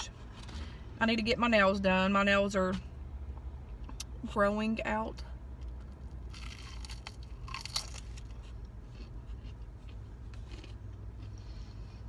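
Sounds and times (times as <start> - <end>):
car engine hum: 0.0 - 12.0
chewing with faint crunches: 5.6 - 12.0
crunchy bite: 6.2 - 8.4.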